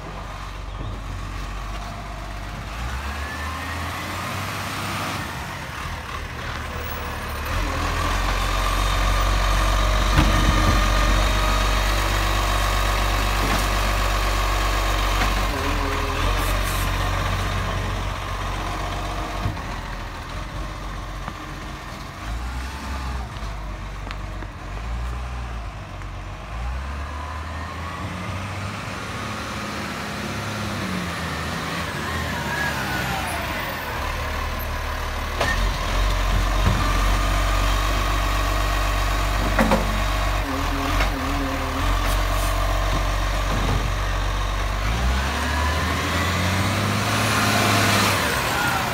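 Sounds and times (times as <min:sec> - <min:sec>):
garbage truck diesel engine: 0:00.0 - 0:48.9.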